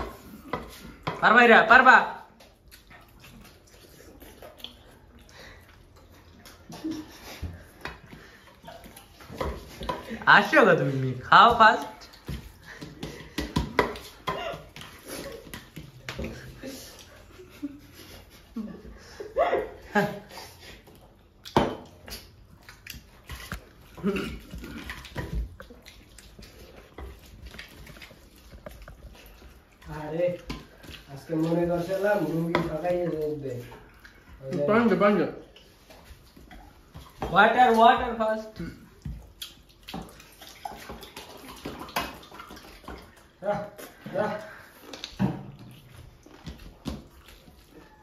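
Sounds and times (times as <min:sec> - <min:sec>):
wet squishing of hands kneading: 0:00.0 - 0:48.0
soft chewing: 0:02.3 - 0:10.3, 0:20.2 - 0:34.7, 0:35.3 - 0:37.2, 0:38.4 - 0:48.0.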